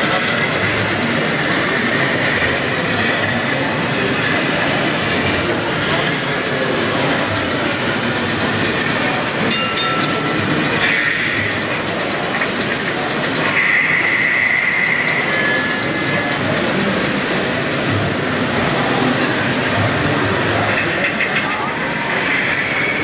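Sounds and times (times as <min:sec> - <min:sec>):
model tram wheels rolling: 0:00.0 - 0:23.0
high wheel squeal: 0:13.4 - 0:16.3.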